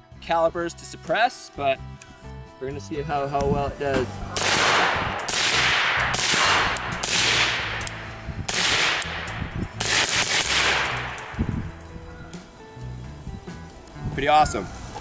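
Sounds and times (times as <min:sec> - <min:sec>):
suppressed rifle shots: 0:04.3 - 0:11.4
gunshot echo: 0:04.3 - 0:11.6.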